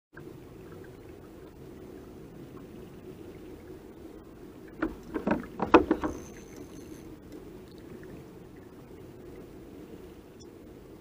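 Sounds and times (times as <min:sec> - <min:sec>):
steady low hum: 0:00.2 - 0:11.0
knocks and clatters on kayak: 0:04.7 - 0:07.0.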